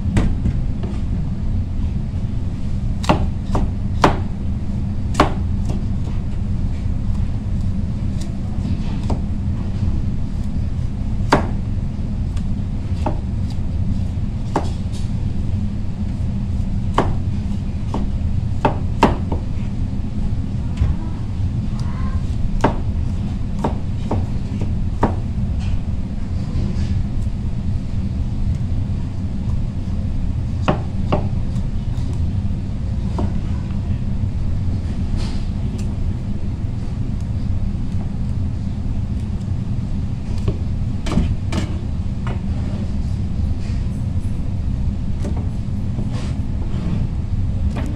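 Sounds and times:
low rumble: 19.6 - 22.4.

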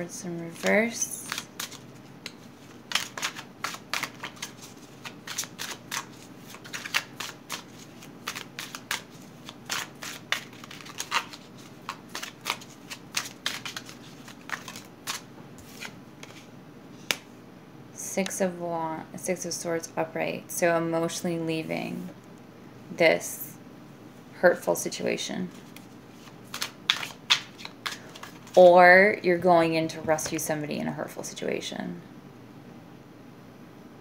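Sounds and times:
cards being shuffled: 0.5 - 17.3, 25.5 - 28.7.

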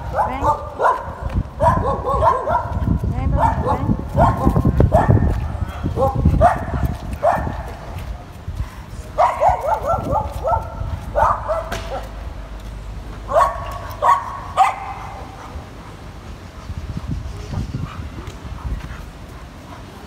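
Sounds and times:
dog yipping and barking: 0.0 - 2.8, 3.4 - 5.4, 6.0 - 7.7, 9.2 - 12.1, 13.3 - 15.6.

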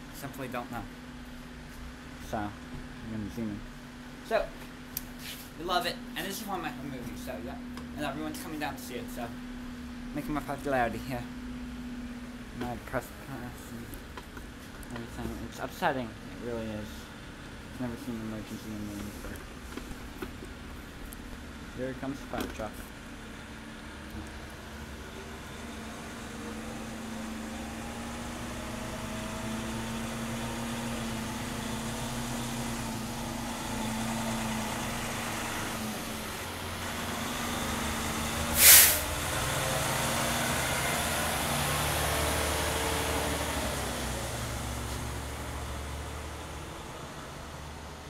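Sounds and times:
fire truck engine running: 0.0 - 48.0
air brakes hissing: 38.5 - 39.1.

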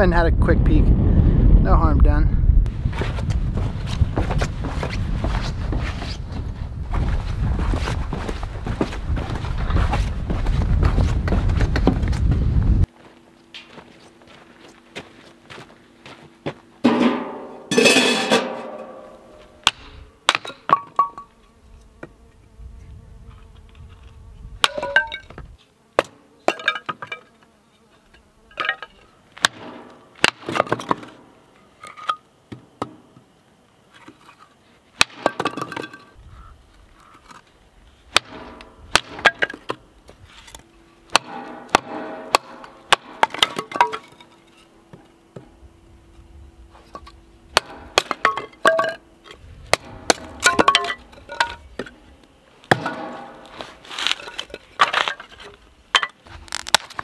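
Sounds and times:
sticks clinking as they fall: 50.1 - 51.9
wood cracking as it splits: 56.3 - 57.0.

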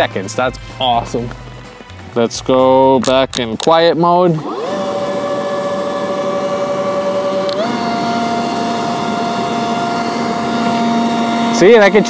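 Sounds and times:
leaf blower whining: 3.9 - 12.0.

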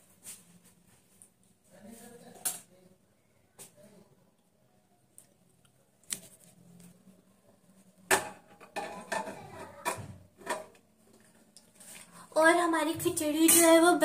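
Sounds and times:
metal lid clanking and scraping: 8.2 - 9.7.

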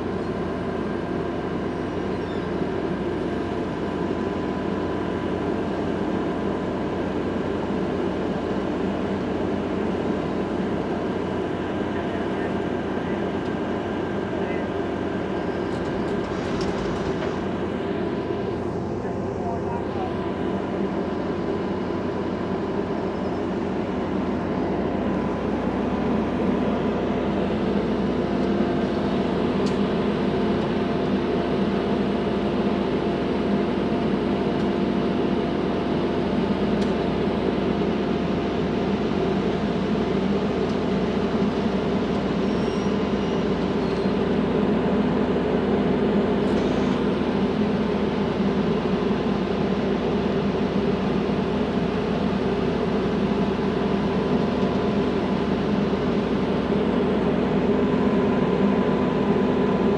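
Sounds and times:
diesel engine droning: 0.0 - 59.9.

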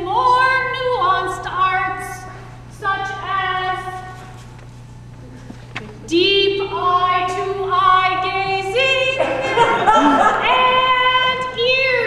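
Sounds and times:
woman singing unaccompanied: 6.0 - 9.2, 10.3 - 12.0.

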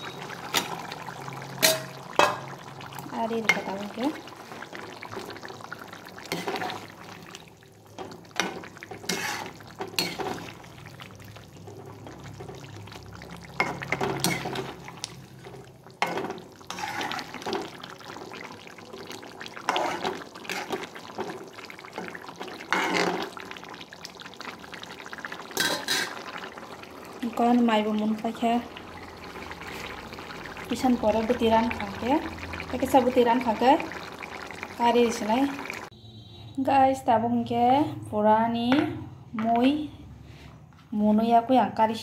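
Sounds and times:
thick gravy slopping: 0.0 - 35.9
spatula scraping metal pan: 8.4 - 10.5, 13.6 - 14.7, 16.0 - 17.6, 19.7 - 20.9, 22.7 - 23.2.

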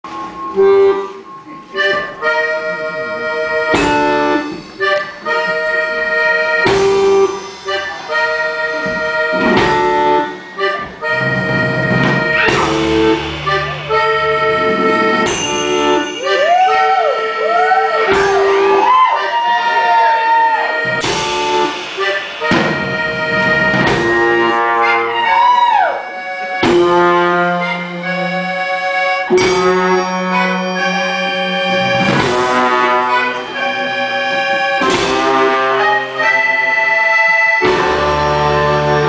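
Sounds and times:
low bass line: 0.0 - 18.9, 26.1 - 37.0, 37.6 - 39.0
brass horns playing sliding notes: 0.1 - 39.0
loud band hits: 3.6 - 17.2, 18.0 - 28.5, 29.3 - 36.7, 37.6 - 39.0.

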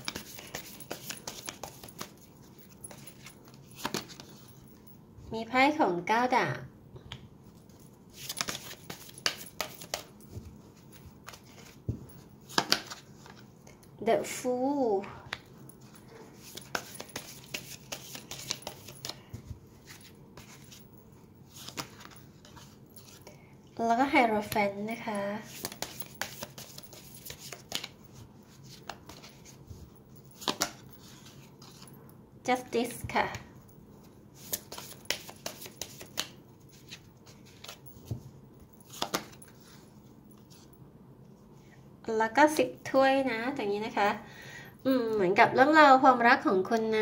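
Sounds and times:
cards clicking and flicking: 0.0 - 2.2, 2.9 - 4.4, 8.2 - 10.1, 12.5 - 13.0, 16.4 - 19.2, 25.5 - 27.9, 30.4 - 30.8, 34.4 - 36.4, 38.9 - 39.4.

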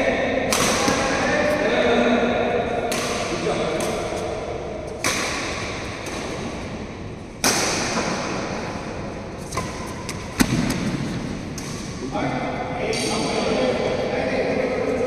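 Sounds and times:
racket smacking shuttlecock: 0.5 - 1.1, 2.8 - 12.0.

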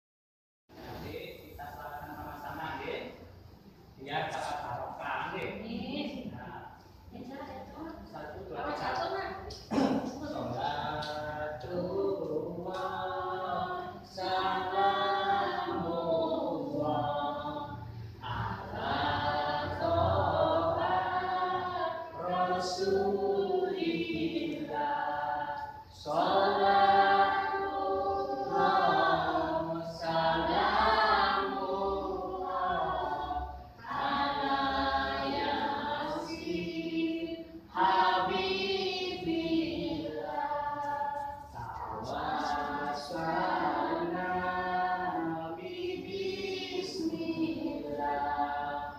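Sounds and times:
group of voices singing: 7.1 - 48.9.

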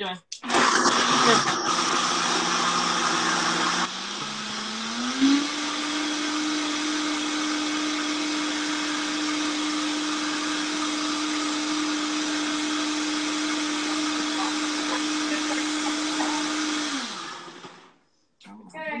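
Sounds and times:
blender motor running: 0.4 - 18.0.

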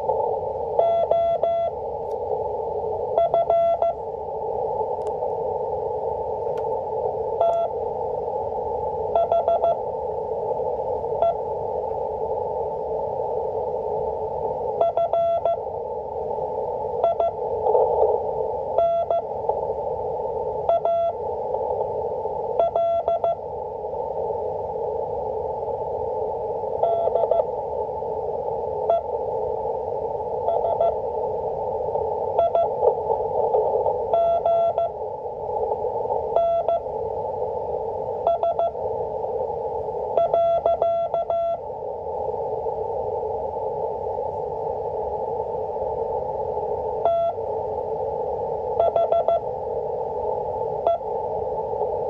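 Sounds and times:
receiver hiss: 0.0 - 52.0
morse code beeping tone: 0.8 - 1.7, 3.2 - 4.0, 18.8 - 19.2, 20.7 - 21.1, 22.6 - 23.4, 26.8 - 27.4, 32.4 - 32.8, 34.1 - 35.0, 36.4 - 36.8, 38.3 - 38.8, 40.2 - 41.6, 47.1 - 47.4, 48.8 - 49.4.

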